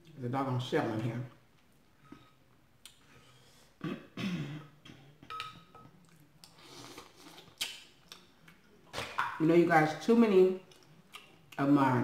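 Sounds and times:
wet mouth eating noises: 6.0s - 9.3s, 10.7s - 11.6s.

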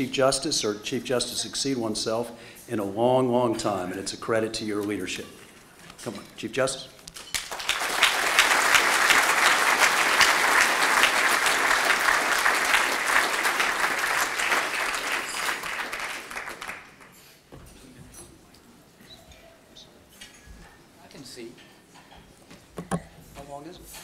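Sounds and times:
audience applauding: 7.2s - 17.2s.

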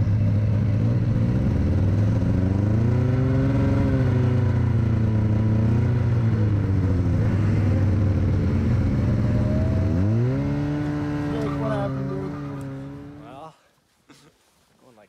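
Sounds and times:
snowmobile engine running: 0.0s - 13.4s.

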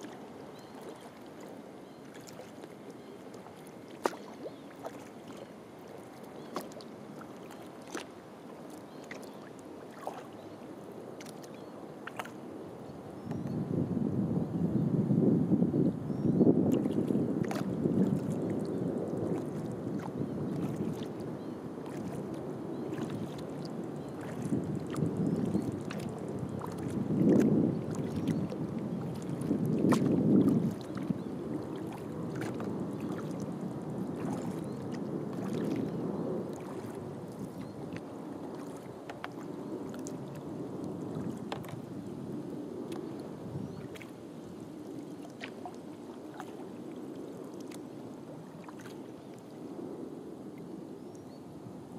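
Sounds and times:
small water drips: 0.0s - 10.6s, 11.2s - 12.4s, 16.7s - 41.9s
paddle splashing water: 0.0s - 13.5s, 16.5s - 49.8s.

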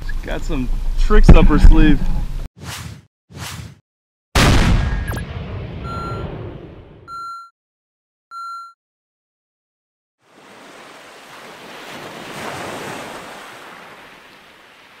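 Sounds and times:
short electronic beep: 5.8s - 6.3s, 7.1s - 7.5s, 8.3s - 8.8s
rushing water like surf: 10.2s - 15.0s.

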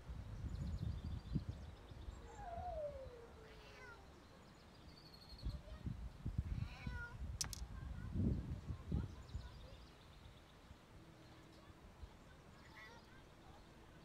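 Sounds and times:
sharp click: 7.4s - 7.6s.

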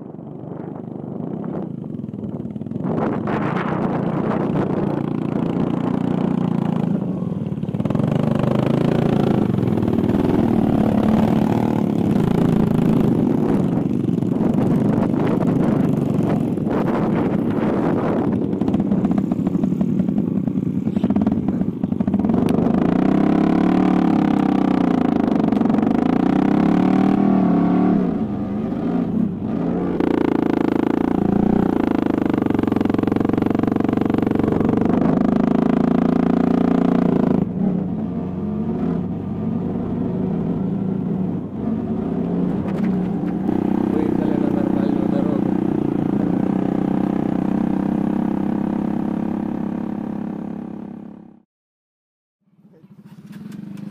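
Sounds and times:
dirt bike engine revving: 7.8s - 39.0s, 41.8s - 51.0s.

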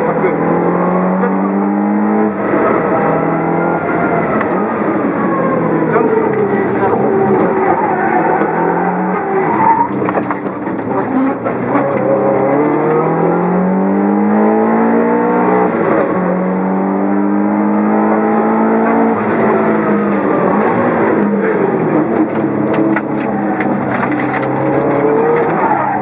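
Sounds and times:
car engine accelerating hard: 0.0s - 26.0s.

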